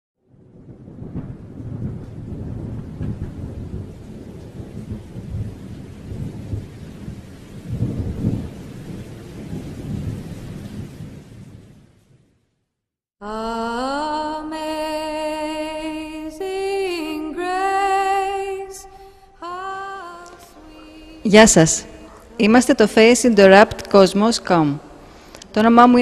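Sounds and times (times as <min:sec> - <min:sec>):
thunder rumbling: 0:00.2 - 0:12.3, 0:19.9 - 0:26.0
rain hiss: 0:00.6 - 0:12.0, 0:18.4 - 0:26.0.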